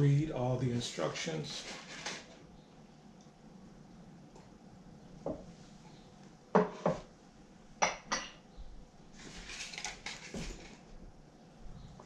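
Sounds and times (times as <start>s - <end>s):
packaging crinkling and rattling: 9.3s - 10.8s.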